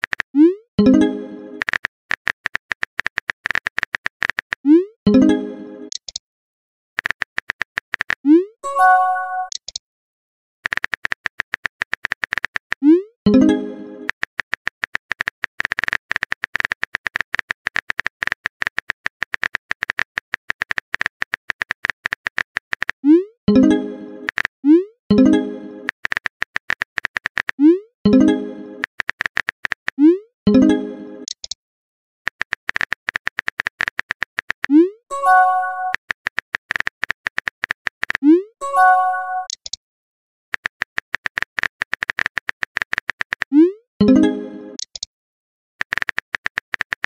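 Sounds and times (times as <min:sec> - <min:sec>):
phone keyboard typing clicks: 0:00.0 - 0:00.3, 0:01.6 - 0:04.6, 0:05.9 - 0:06.2, 0:07.0 - 0:08.3, 0:09.4 - 0:09.8, 0:10.6 - 0:23.0, 0:24.2 - 0:24.5, 0:25.8 - 0:28.2, 0:28.8 - 0:30.0, 0:31.2 - 0:31.6, 0:32.3 - 0:38.3, 0:39.2 - 0:39.8, 0:40.5 - 0:43.6, 0:44.8 - 0:45.1, 0:45.8 - 0:47.0.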